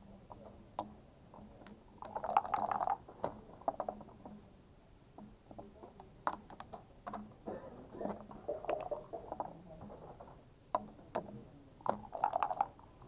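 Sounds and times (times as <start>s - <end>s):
dice rattling in a cup: 11.9s - 12.8s.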